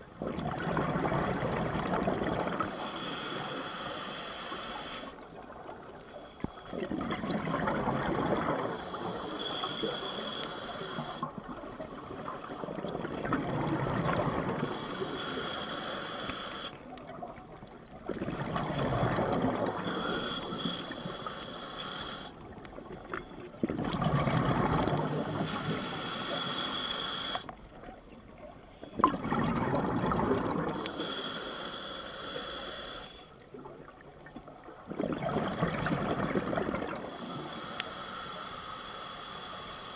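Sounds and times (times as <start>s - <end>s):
diver breathing through regulator: 2.5s - 5.2s, 8.4s - 11.3s, 14.2s - 16.8s, 19.1s - 22.5s, 24.6s - 27.5s, 30.2s - 33.4s, 36.3s - 39.9s
regulator bubbling: 29.0s - 31.0s.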